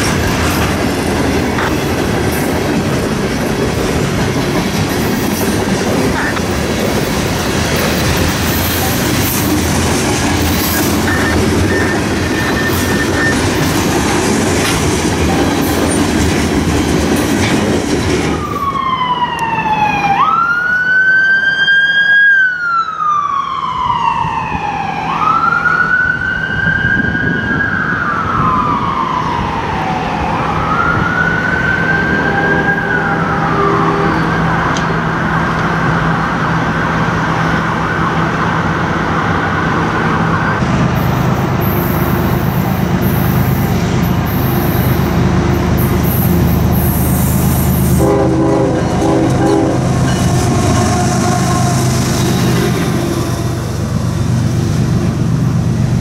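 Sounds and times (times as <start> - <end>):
train rail noise: 0.0 - 20.9, 23.6 - 56.0
siren wailing: 10.5 - 14.2, 18.2 - 34.8, 48.0 - 53.8.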